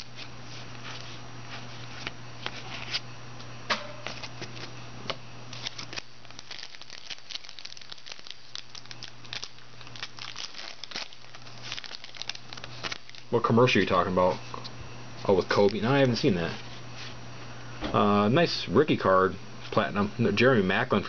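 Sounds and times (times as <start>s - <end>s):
foil wrapper tearing and crinkling: 5.5s - 13.9s.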